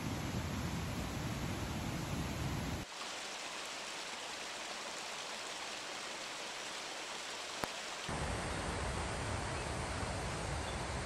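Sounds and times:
stream rushing over stones: 2.8s - 8.9s.

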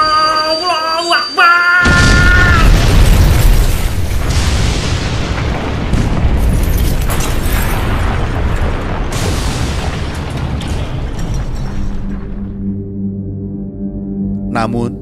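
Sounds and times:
rumbling explosion: 1.8s - 13.4s.

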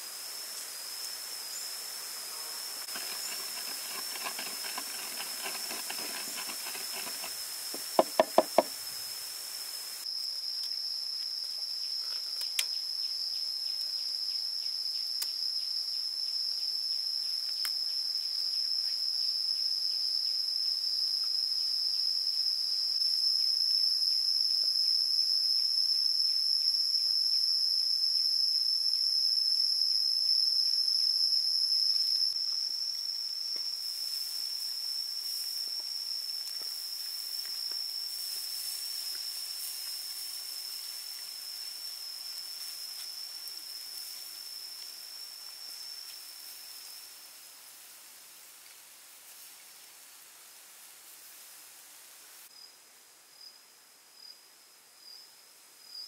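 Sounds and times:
high insect buzz: 0.0s - 48.0s
meat grilling over coals: 2.9s - 8.0s
pestle pounding in clay mortar: 2.9s - 8.7s
sharp knocks: 7.8s - 8.7s.

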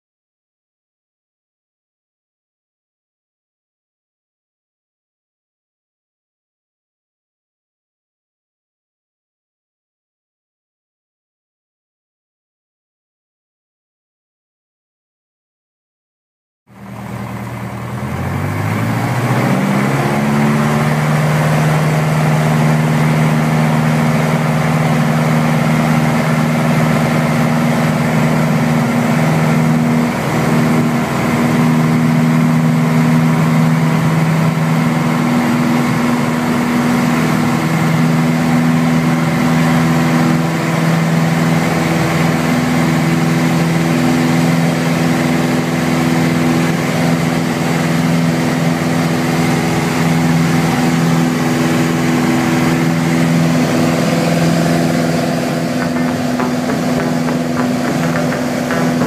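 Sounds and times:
piston aircraft engine and propeller: 16.7s - 59.0s.

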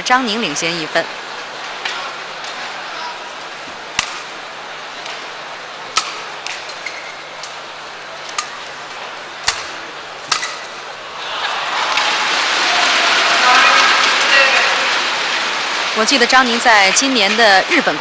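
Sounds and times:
crowd murmur: 0.4s - 18.0s
racket hitting shuttlecock: 3.9s - 4.3s, 5.9s - 7.6s, 8.2s - 10.9s.

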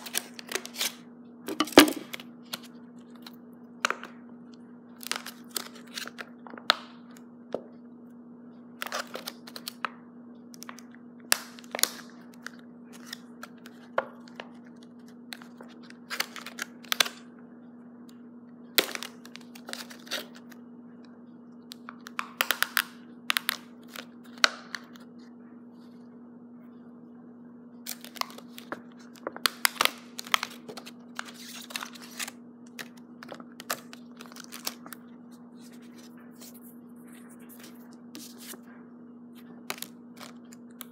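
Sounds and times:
plastic packaging crackling: 27.9s - 35.0s.

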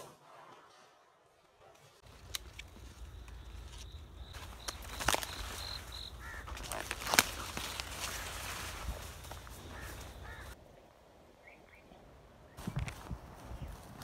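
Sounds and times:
corn leaves rustling: 2.0s - 10.6s.

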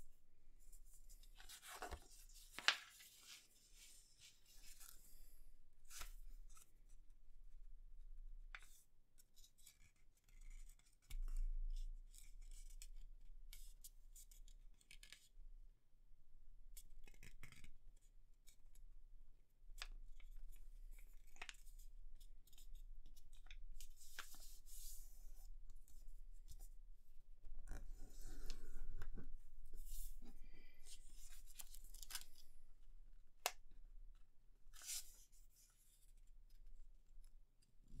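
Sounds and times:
paper rustling and creasing: 1.1s - 5.2s, 23.4s - 26.6s.

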